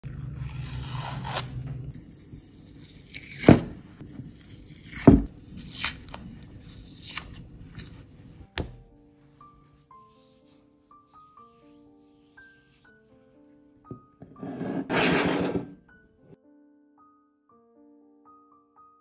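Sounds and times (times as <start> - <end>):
masking tape peeling: 0.0 - 8.0.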